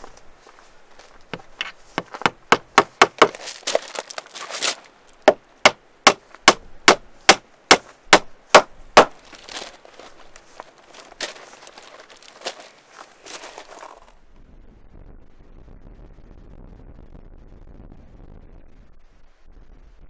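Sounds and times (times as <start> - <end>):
sharp evenly spaced knocks: 1.4 - 4.3, 5.2 - 9.6.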